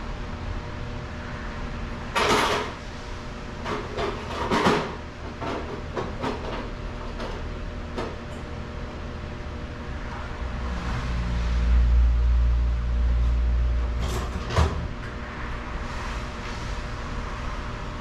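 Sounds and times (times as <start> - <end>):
shop hum: 0.0 - 18.0.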